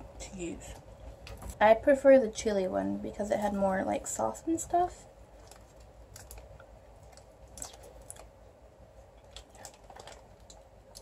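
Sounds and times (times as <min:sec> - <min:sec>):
food wrapper crinkling: 0:05.3 - 0:08.4, 0:09.2 - 0:11.0.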